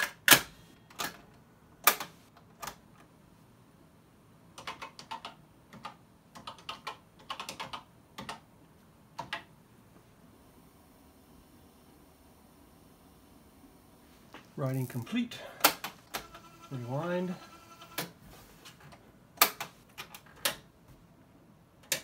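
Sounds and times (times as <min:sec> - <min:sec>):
computer keyboard typing: 0:04.6 - 0:08.4.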